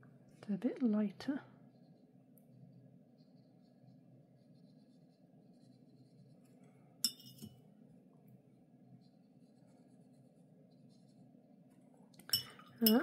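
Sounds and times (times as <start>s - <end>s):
low room hum: 0.0s - 13.0s
brush scratching on paper: 3.1s - 6.5s, 9.0s - 11.3s
paintbrush clinking on glass jar: 7.0s - 7.5s, 12.2s - 13.0s.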